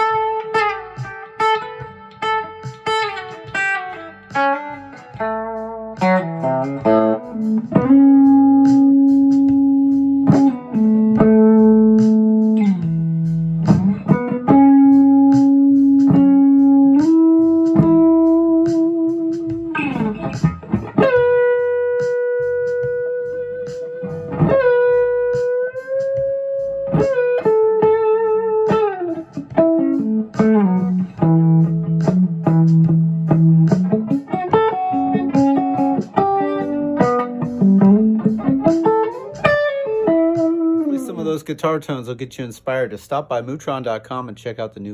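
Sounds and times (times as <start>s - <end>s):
clean electric guitar: 0.0s - 41.5s.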